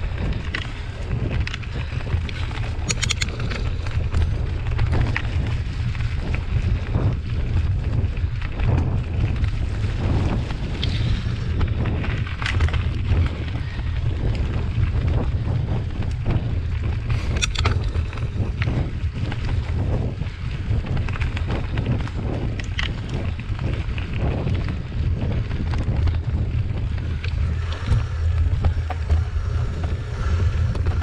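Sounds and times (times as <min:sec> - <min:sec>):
bike rattling and clicking: 0:00.0 - 0:31.0
wind buffeting microphone: 0:00.0 - 0:31.0.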